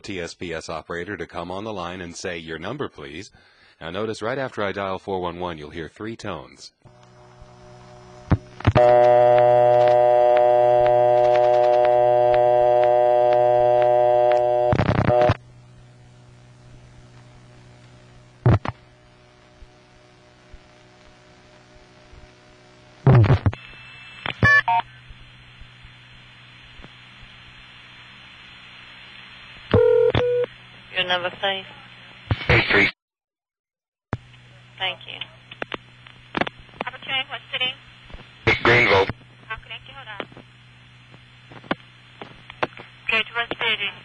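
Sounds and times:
carrier noise hiss: 5.5 - 33.0, 34.2 - 44.0
buzzy telephone dial tone: 8.6 - 15.4.

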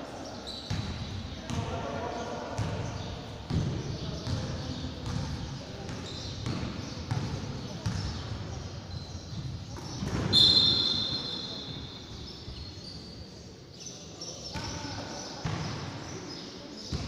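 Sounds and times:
voices of players and onlookers: 0.0 - 17.0
basketball bouncing: 3.5 - 4.4, 5.0 - 8.4
referee's whistle blast: 10.3 - 11.8.

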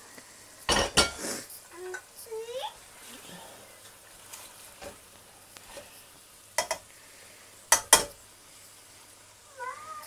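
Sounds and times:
faint sizzle: 0.0 - 10.0.

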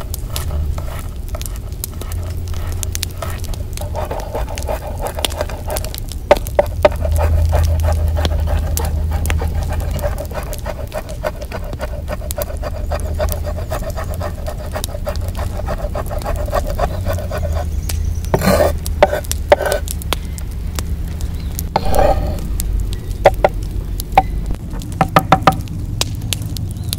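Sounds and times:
steady tone: 21.8 - 24.6
knife tapping on cutting board: 25.0 - 25.6.

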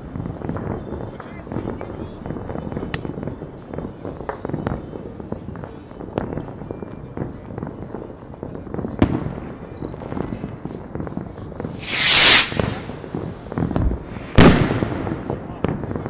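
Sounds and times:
distant fireworks bangs and crackles: 0.0 - 16.0
loud hiss: 11.8 - 13.1.

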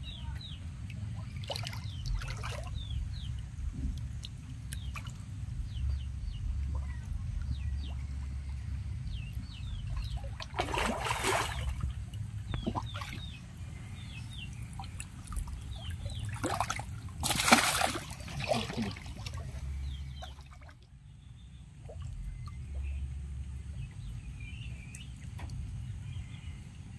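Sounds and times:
fish thrashing in water: 1.2 - 3.3, 4.0 - 13.8, 14.4 - 20.8.

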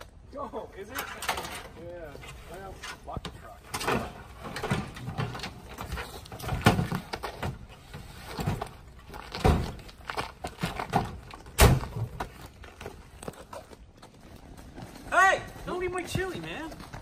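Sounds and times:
tailgate slammed shut: 11.6 - 12.1.

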